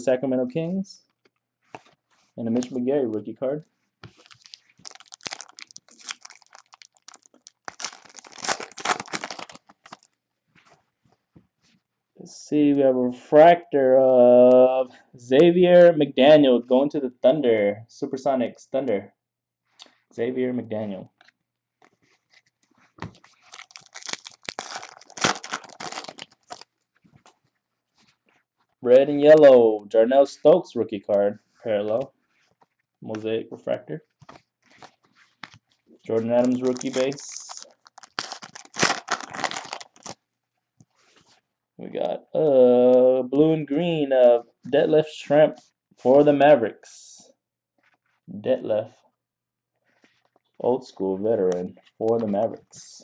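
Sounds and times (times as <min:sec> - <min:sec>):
foil wrapper tearing and crinkling: 0:04.1 - 0:10.1, 0:23.2 - 0:26.7, 0:36.3 - 0:40.2.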